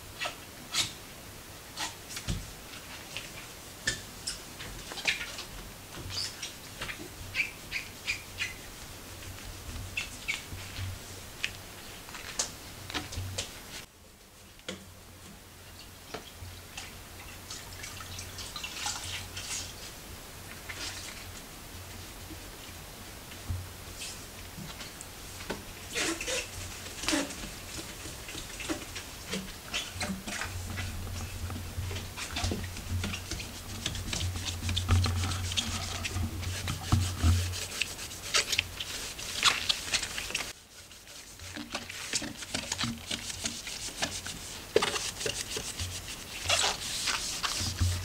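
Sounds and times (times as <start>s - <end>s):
cloth squeaking on painted wood: 25.9s - 28.8s, 41.4s - 48.0s.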